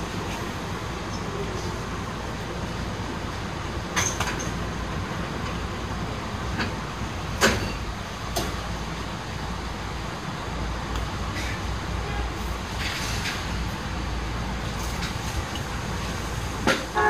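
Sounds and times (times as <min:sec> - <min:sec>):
electric train hum: 0:00.0 - 0:17.0
sharp knocks and clunks: 0:07.4 - 0:08.6.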